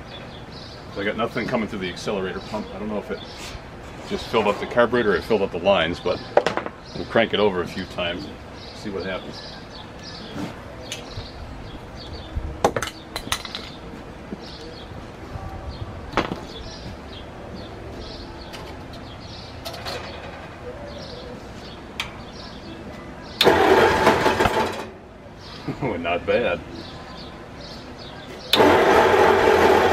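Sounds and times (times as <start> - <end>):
engine starter cranking: 23.4 - 24.9, 28.5 - 29.9.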